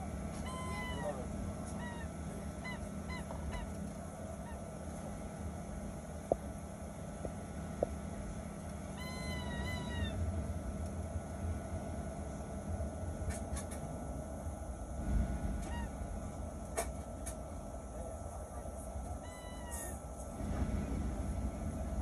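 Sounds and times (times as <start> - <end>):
jet engines low rumble: 0.0 - 22.0
wavering squeal: 0.4 - 3.8, 9.0 - 10.2
short high squeaks: 9.0 - 10.1, 19.2 - 20.0.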